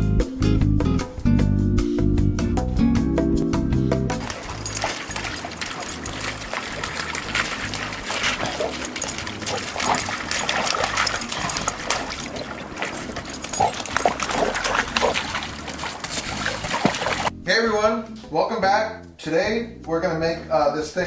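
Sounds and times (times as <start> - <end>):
dogs yelping: 4.2 - 17.3
dogs' play noises: 4.2 - 17.3
water splashing under dogs' feet: 4.2 - 17.3.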